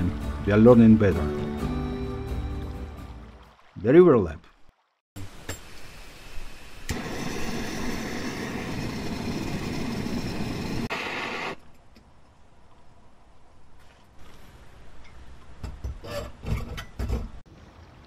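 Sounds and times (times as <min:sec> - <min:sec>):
gas burner hissing: 0:05.7 - 0:11.6.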